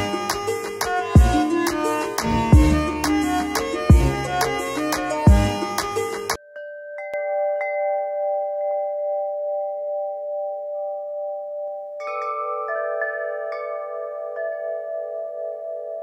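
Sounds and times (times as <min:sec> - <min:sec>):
struck bell-like chimes ringing: 0:06.4 - 0:15.5.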